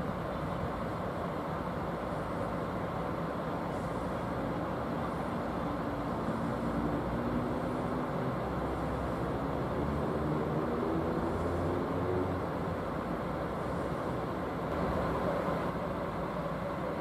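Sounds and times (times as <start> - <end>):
locomotive engine drone: 0.0 - 17.0.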